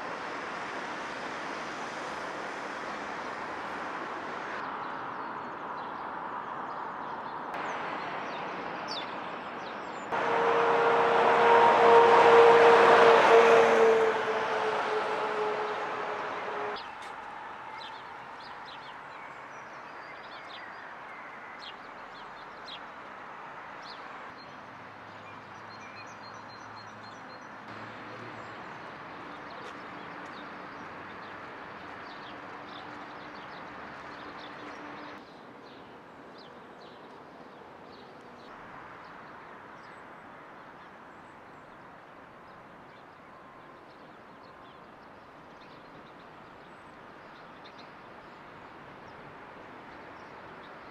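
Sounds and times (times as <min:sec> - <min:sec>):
distant traffic hum: 0:00.0 - 0:50.9.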